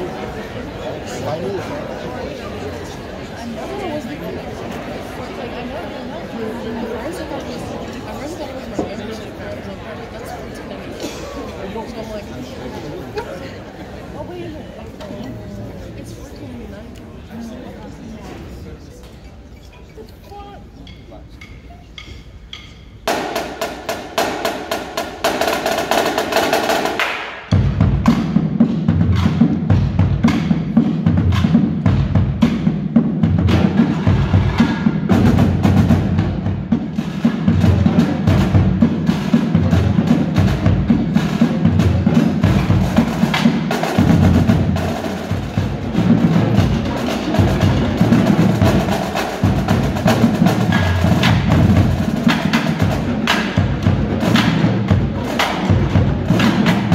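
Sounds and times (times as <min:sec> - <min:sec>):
low drums: 0:20.4 - 0:56.9
drumline playing a cadence: 0:20.8 - 0:56.9.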